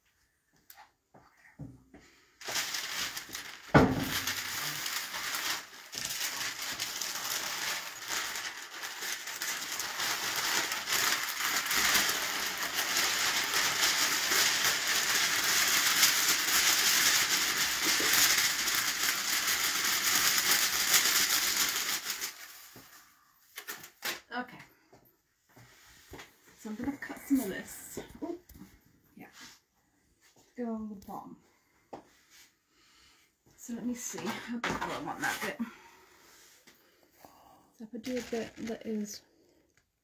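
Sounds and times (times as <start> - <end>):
crinkly material rustling: 2.1 - 24.3, 25.5 - 29.6, 33.6 - 37.0, 37.8 - 40.0.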